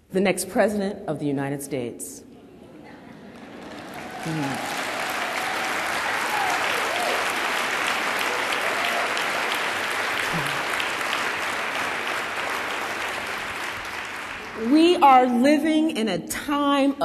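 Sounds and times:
audience applauding: 2.9 - 15.0.

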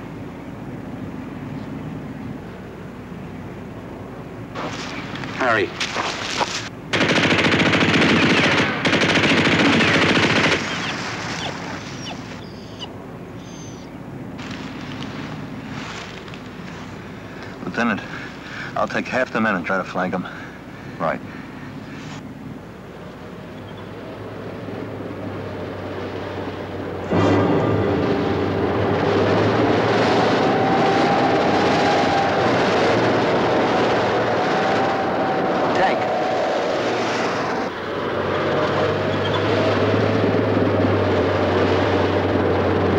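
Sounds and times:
quiet steady noise: 0.0 - 29.6
tank engine and tracks rumbling: 0.0 - 42.9
machine-gun fire bursts: 6.9 - 11.5
faint high whistles: 10.7 - 13.9.

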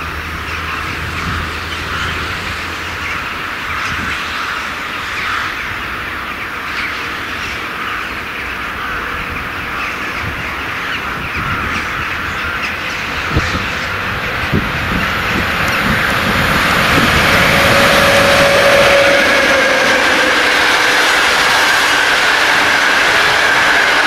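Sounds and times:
flock of birds chattering: 0.0 - 17.2
train knocks: 9.2 - 24.0.

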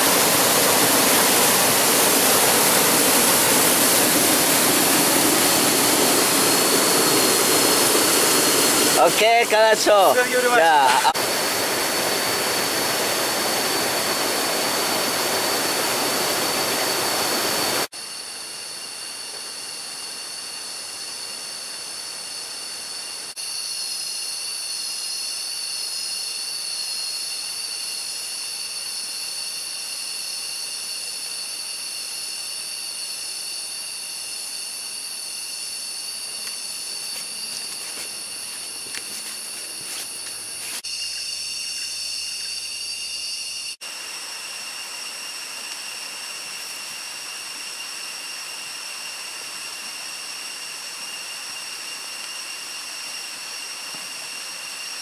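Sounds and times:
loud rushing water: 0.0 - 17.9
insects droning: 0.0 - 55.0.

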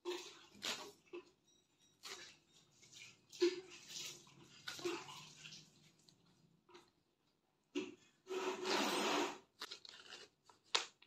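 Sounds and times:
sacking tearing and rustling: 0.4 - 1.1, 8.4 - 11.0.

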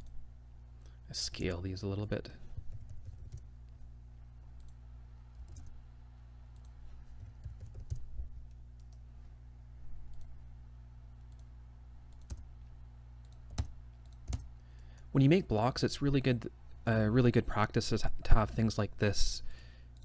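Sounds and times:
steady low hum: 0.0 - 20.0
computer keyboard keystrokes: 2.7 - 3.5, 5.4 - 5.7, 6.6 - 9.0, 12.1 - 12.4, 13.2 - 14.5.

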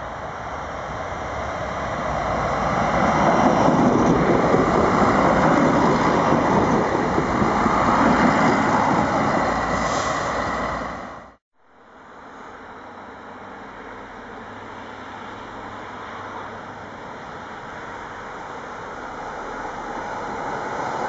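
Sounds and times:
train wheels on rail: 0.1 - 11.4.

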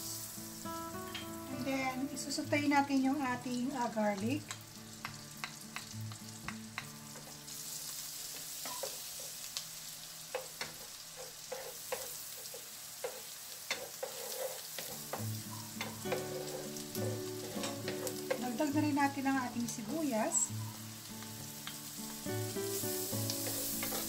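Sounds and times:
garlic sizzling in butter: 0.0 - 24.0
spatula scraping and tapping pan: 4.5 - 7.4, 8.3 - 9.4, 10.3 - 18.7, 23.2 - 24.0.

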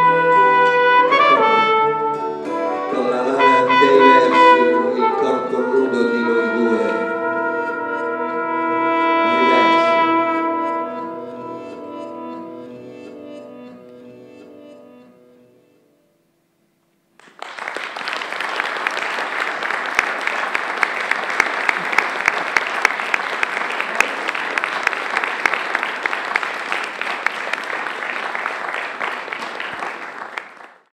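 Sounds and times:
audience applause: 17.2 - 30.9.

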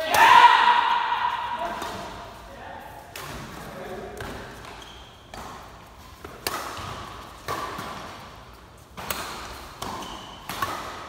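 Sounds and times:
badminton racket hitting shuttlecock: 3.0 - 11.0.

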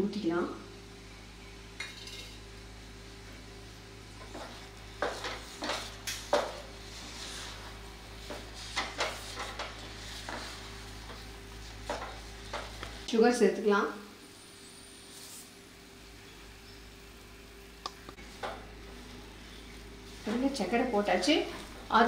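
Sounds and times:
wooden spatula scraping a pan: 4.2 - 12.9.

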